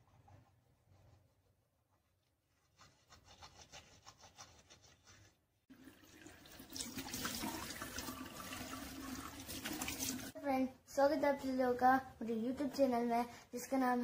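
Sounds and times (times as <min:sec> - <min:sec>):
tap water running into sink: 0:05.7 - 0:10.4.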